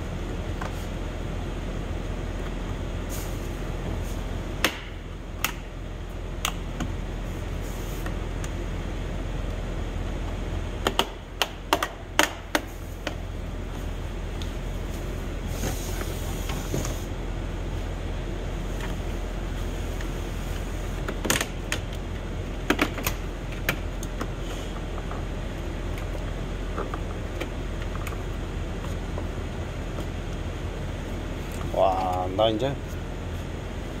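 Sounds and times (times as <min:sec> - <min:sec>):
low shop hum: 0:00.0 - 0:34.0.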